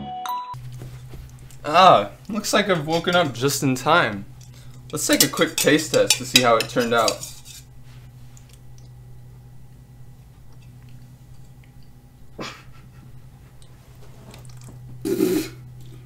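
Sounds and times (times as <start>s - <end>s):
low steady hum: 0.6s - 16.0s
rough spitting mouth noise: 15.0s - 15.6s.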